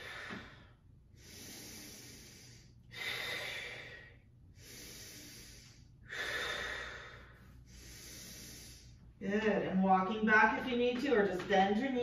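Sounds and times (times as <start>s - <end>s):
person breathing deeply: 0.0s - 9.2s.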